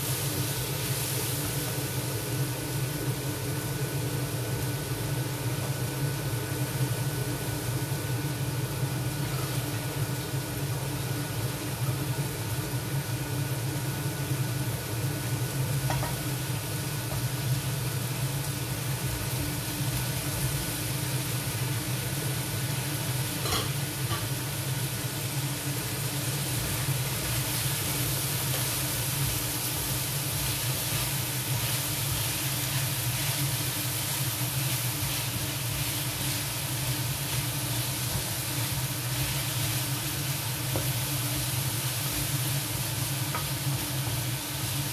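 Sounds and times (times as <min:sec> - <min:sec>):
food sizzling in a wok: 0:00.0 - 0:44.9
wooden spatula stirring pan: 0:27.2 - 0:44.2.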